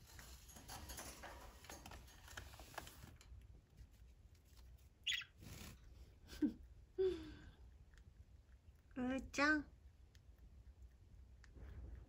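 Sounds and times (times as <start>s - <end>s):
faint rustling and scratching: 0.0s - 6.4s.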